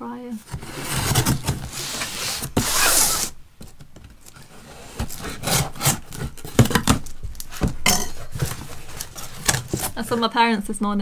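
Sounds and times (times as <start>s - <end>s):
cardboard rubbing: 0.4s - 10.3s
knife scraping along cardboard: 0.5s - 3.4s, 4.3s - 10.2s
knife slitting packing tape: 1.8s - 3.3s, 4.9s - 7.0s.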